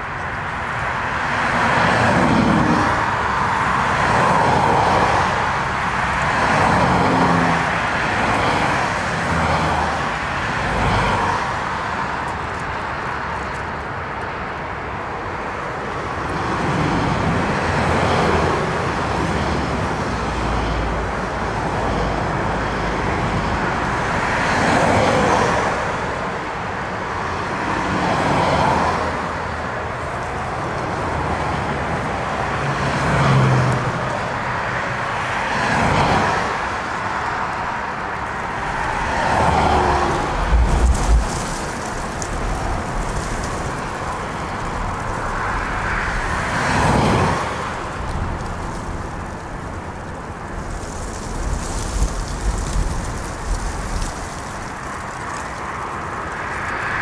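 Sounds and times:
wind noise: 35.8 - 57.0.

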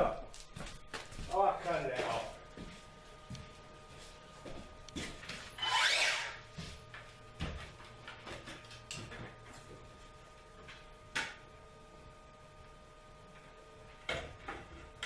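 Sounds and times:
knocks and scuffs on ladder: 7.4 - 9.8.

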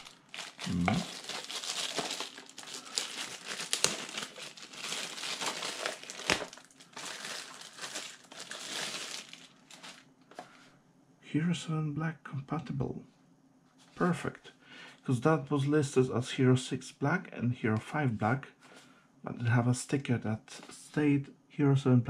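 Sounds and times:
packaging crinkling: 0.0 - 10.1.

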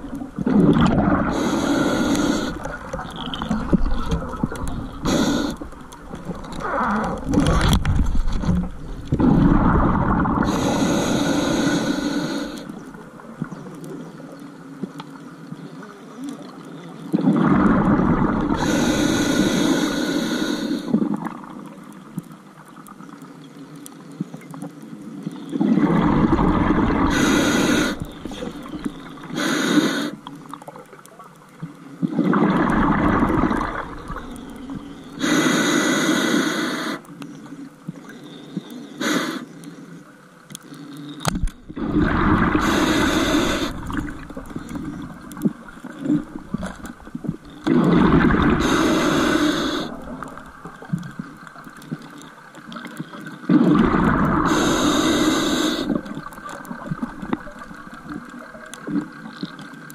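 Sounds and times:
bubbling: 0.0 - 13.9, 17.1 - 22.2, 25.4 - 31.0, 32.0 - 35.3, 41.2 - 59.9
faint steady hiss: 0.0 - 59.9
diver breathing through regulator: 0.7 - 8.5, 9.1 - 12.9, 17.7 - 21.1, 25.8 - 30.3, 32.9 - 37.1, 38.2 - 39.7, 41.8 - 50.8, 53.6 - 56.4.

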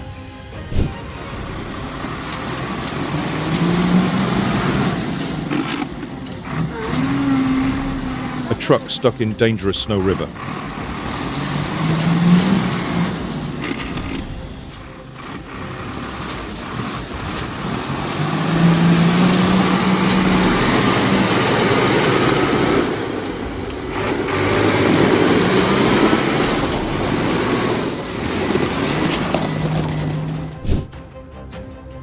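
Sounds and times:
truck engine running hard: 0.0 - 30.8
churning slush and ice: 1.2 - 30.6.

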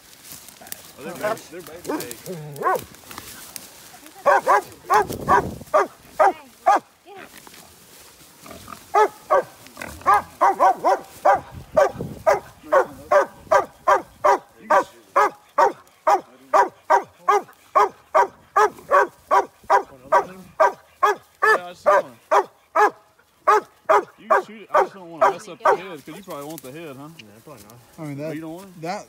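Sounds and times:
dog barking rapidly: 1.9 - 2.8, 4.2 - 6.9, 8.9 - 25.9.

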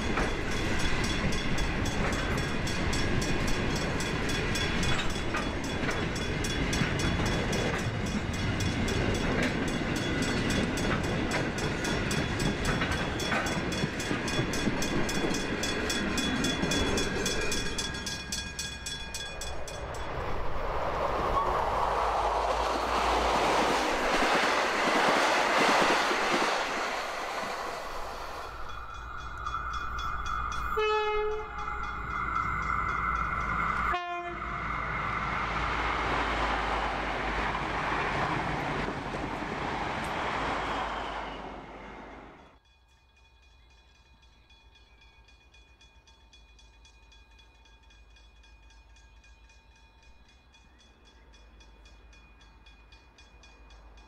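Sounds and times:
passenger train rushing past: 0.0 - 42.6
freight train rumbling past: 0.0 - 54.0
rail joint clicks: 0.0 - 54.0
high ringing tones: 11.9 - 20.6, 26.8 - 35.3.

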